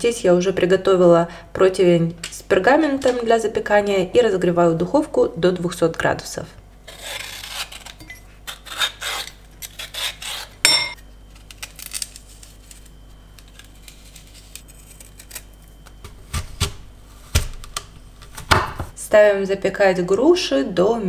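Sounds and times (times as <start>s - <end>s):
blade scraping fruit: 6.8s - 10.6s
clink against glass bowl: 10.7s - 11.0s.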